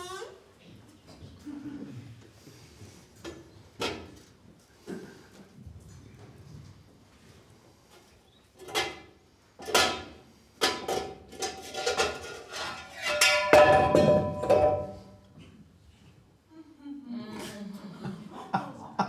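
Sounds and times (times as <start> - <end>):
metal pot lid clanging: 10.6 - 15.1.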